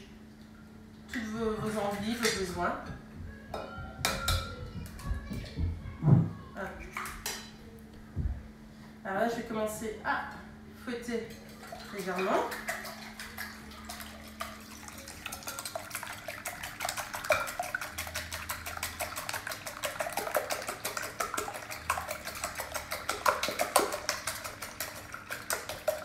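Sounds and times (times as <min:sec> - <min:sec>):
fork beating eggs in bowl: 0:11.3 - 0:26.0.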